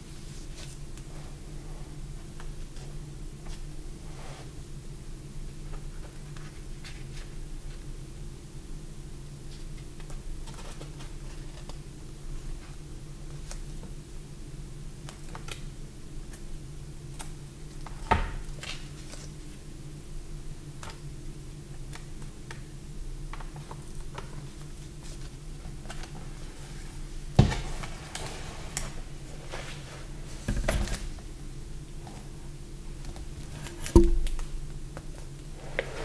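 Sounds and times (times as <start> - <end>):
steady low hum: 0.0 - 36.0
sharp knocks: 34.0 - 34.2.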